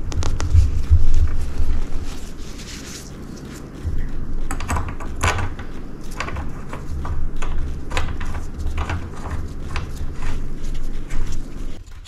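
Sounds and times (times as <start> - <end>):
low bumps: 3.8 - 10.2.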